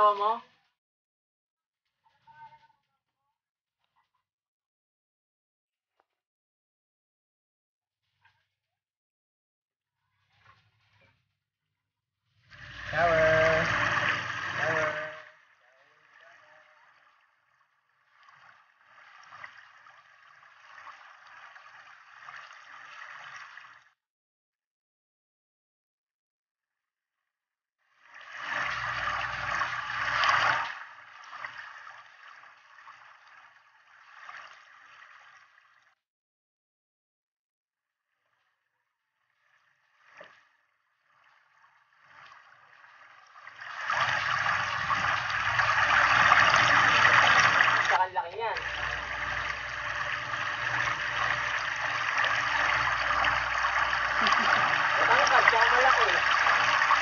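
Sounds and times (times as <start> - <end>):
hose water splashing: 12.4 - 23.9, 28.0 - 36.0, 39.4 - 57.0.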